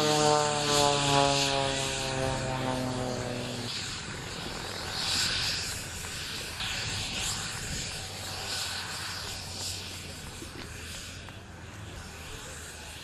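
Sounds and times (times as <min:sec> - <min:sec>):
propeller planes droning overhead: 0:00.0 - 0:13.0.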